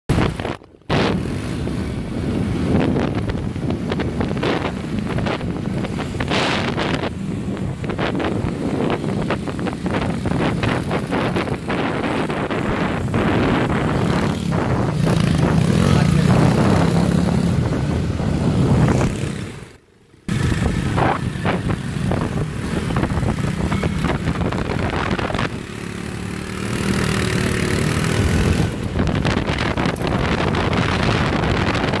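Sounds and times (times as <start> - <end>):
small motorcycle engines running: 7.9 - 31.9.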